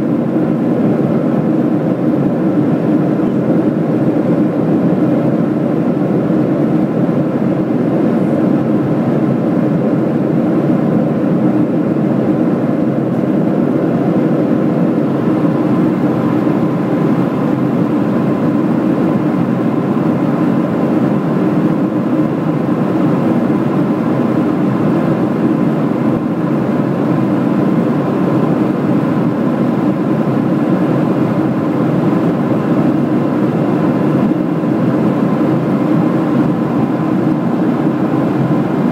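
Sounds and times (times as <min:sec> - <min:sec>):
airliner cabin engine roar: 0:00.0 - 0:38.9
faint high whine: 0:13.0 - 0:22.4.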